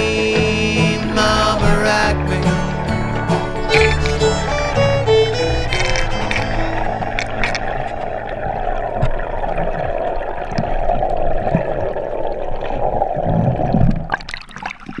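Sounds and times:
water splashes: 0:00.4 - 0:15.0.

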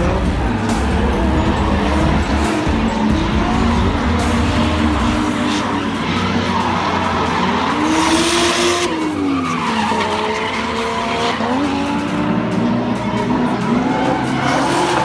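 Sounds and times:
tyre screech: 0:00.0 - 0:11.6
car engine revving: 0:00.0 - 0:15.0.

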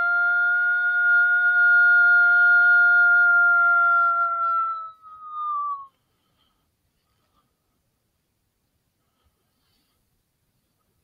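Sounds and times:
electronic caller howl: 0:00.0 - 0:05.9.

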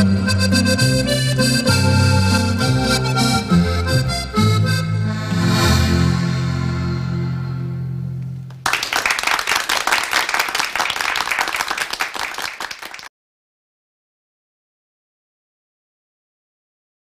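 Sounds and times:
accordion bass and guitar chord: 0:00.0 - 0:08.5
audience applause: 0:08.5 - 0:13.1.

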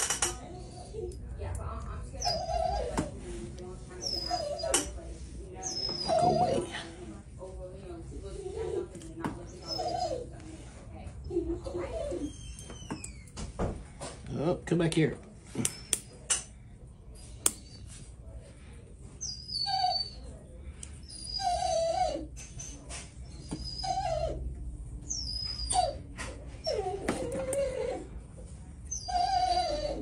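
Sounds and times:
animal whimpering: 0:02.1 - 0:03.2, 0:04.0 - 0:05.0, 0:05.6 - 0:06.9, 0:09.5 - 0:10.3, 0:11.3 - 0:13.3, 0:21.0 - 0:24.5, 0:25.1 - 0:28.2, 0:28.9 - 0:30.0.

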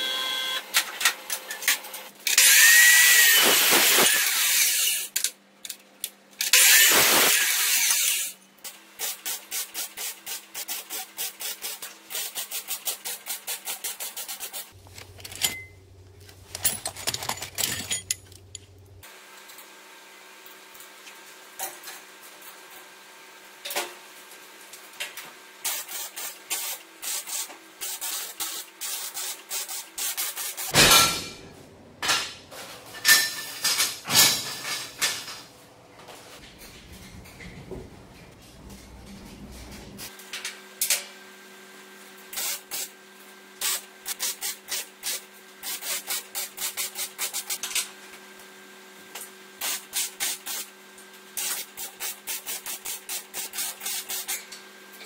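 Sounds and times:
abrasive saw cutting steel tubing: 0:02.3 - 0:05.2, 0:06.5 - 0:08.4
metal clatter: 0:14.9 - 0:18.8.

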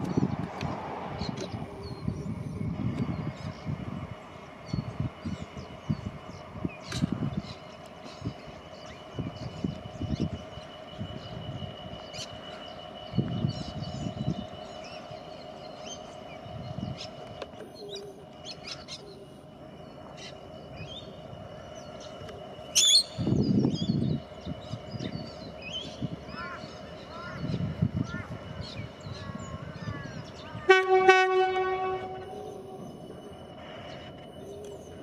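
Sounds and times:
steady background hum: 0:00.1 - 0:35.0
birds chirping: 0:01.1 - 0:35.0.

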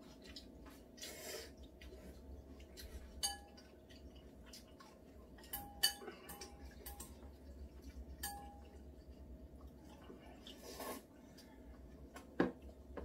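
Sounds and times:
chopsticks clinking on ceramic bowls: 0:03.2 - 0:03.7, 0:05.4 - 0:07.2, 0:08.2 - 0:08.8.

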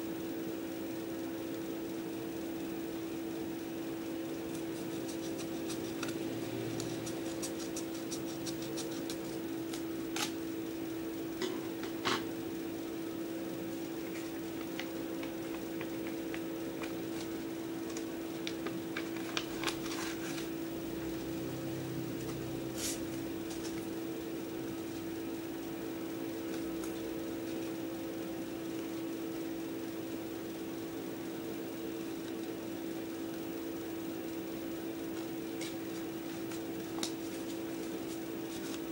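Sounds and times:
electric fan hum: 0:00.0 - 0:38.9
scissors snipping paper: 0:04.5 - 0:10.4
paper rustling: 0:14.1 - 0:20.5, 0:35.6 - 0:38.9.

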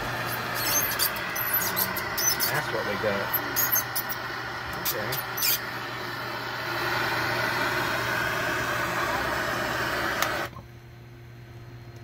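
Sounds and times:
torch flame hissing: 0:00.0 - 0:10.5
torch trigger click: 0:10.0 - 0:10.5.

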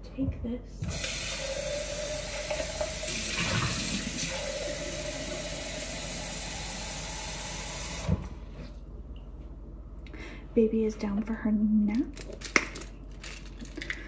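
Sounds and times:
tap water filling a glass: 0:00.8 - 0:08.3.

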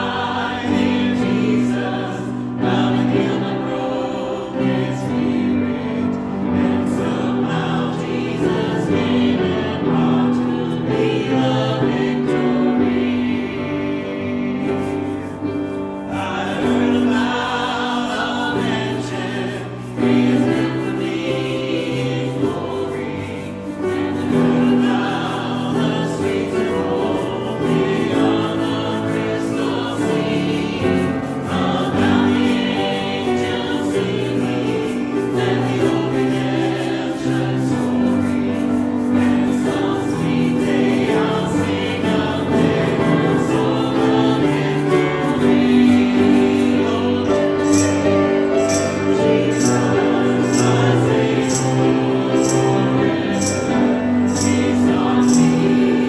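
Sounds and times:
congregation singing a hymn: 0:00.0 - 0:56.0
high percussive beat: 0:46.4 - 0:55.8.

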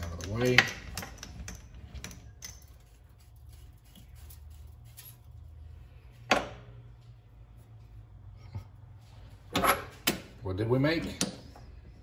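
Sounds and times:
metal parts clicking and tapping: 0:00.0 - 0:03.2
low steady hum: 0:00.0 - 0:12.0.

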